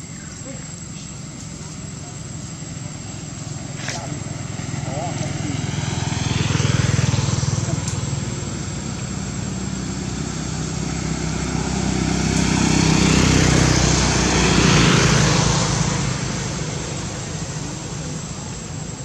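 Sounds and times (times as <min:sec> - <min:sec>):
motor engine droning: 0:00.0 - 0:19.0.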